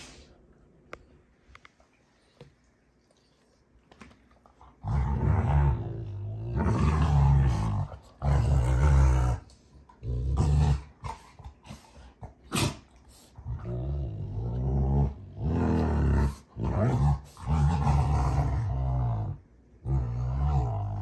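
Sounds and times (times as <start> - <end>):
dogs growling: 4.4 - 21.0.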